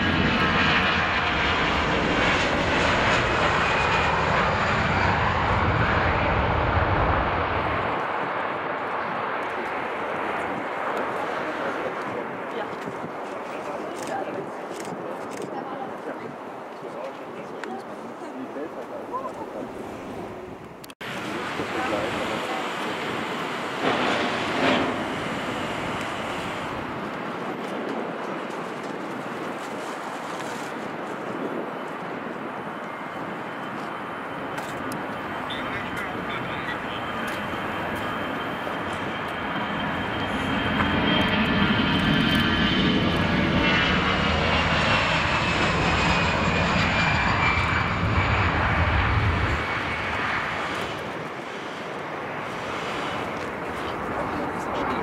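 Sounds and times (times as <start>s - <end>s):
jet engine rushing: 0.0s - 15.9s, 19.4s - 55.0s
wind on microphone: 6.8s - 18.2s.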